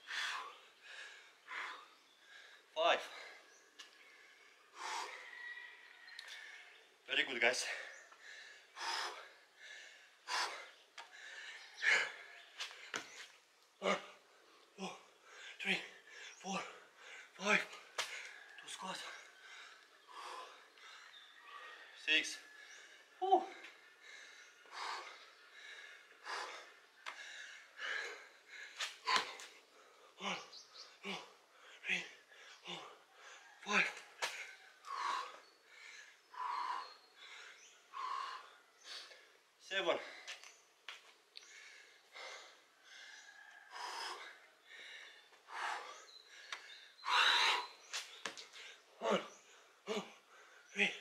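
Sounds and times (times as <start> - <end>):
person breathing hard: 0.0 - 5.3, 7.7 - 12.5, 22.6 - 39.4, 41.4 - 50.7.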